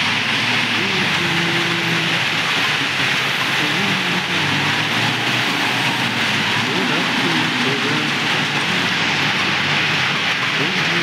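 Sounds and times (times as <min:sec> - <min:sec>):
diesel engine under load: 0:00.0 - 0:11.0
steady loud hiss: 0:00.0 - 0:11.0.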